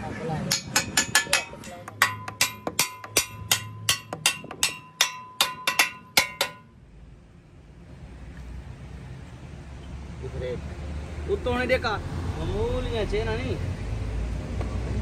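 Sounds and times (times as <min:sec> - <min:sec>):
hammer blows on metal: 0:00.5 - 0:06.8.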